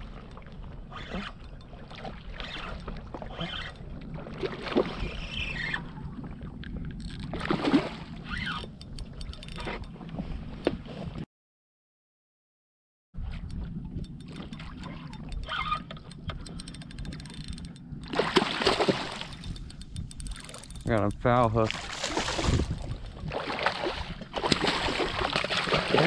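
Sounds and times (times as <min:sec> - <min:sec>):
water lapping around a boat: 0:00.0 - 0:11.2, 0:13.2 - 0:26.0
wind: 0:00.0 - 0:11.3, 0:13.2 - 0:26.0
small clicks: 0:08.3 - 0:09.8, 0:13.5 - 0:18.2, 0:19.1 - 0:21.2
fish splashing at the surface: 0:18.1 - 0:19.4, 0:21.7 - 0:22.8, 0:23.4 - 0:26.0.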